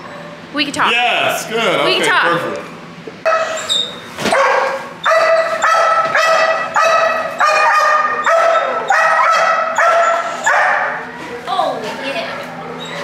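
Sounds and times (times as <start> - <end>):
puppy barking high-pitched: 3.2 - 11.1.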